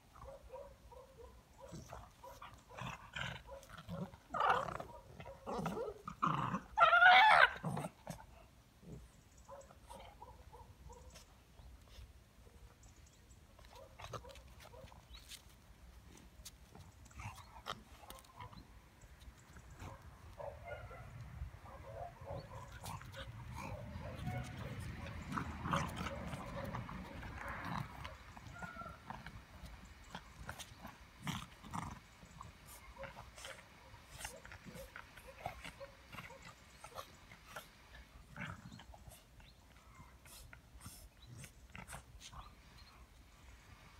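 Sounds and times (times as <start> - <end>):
dogs play-fighting vocal sounds: 16.6 - 18.6, 22.0 - 43.2.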